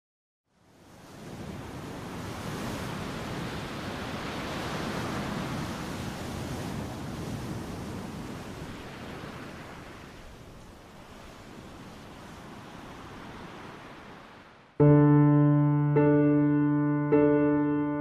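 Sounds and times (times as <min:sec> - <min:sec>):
ocean surf breaking: 0:01.1 - 0:18.0.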